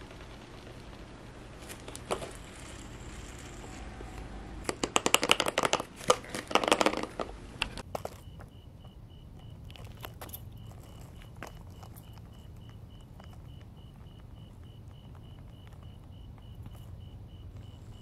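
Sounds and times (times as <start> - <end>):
rapid clicking and rattling: 4.6 - 7.9
skateboard parts clicking: 4.7 - 8.3.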